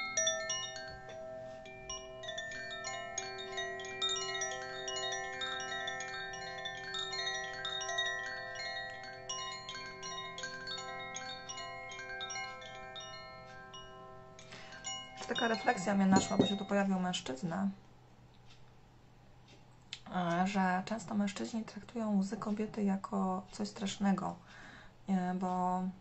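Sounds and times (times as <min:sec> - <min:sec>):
wind chime ringing: 0:00.0 - 0:17.0.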